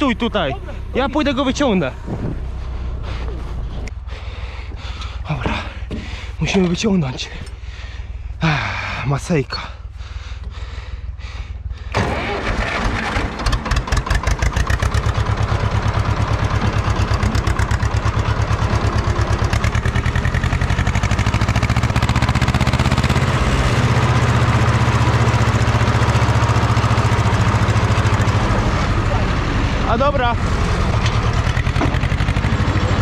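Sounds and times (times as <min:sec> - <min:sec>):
small tractor engine running: 0:11.7 - 0:33.0.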